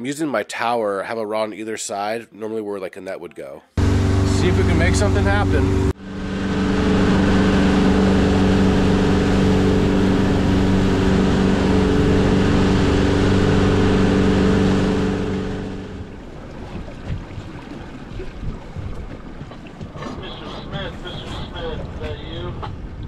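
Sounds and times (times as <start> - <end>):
outboard motor running: 3.8 - 22.9
water washing around hull: 3.8 - 23.0
rush of water and wind: 4.8 - 23.0.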